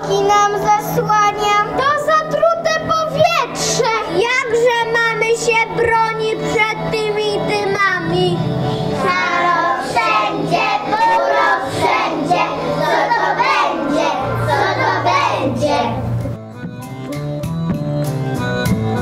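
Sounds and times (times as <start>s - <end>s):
instrumental backing track: 0.0s - 19.0s
children singing: 5.7s - 16.0s.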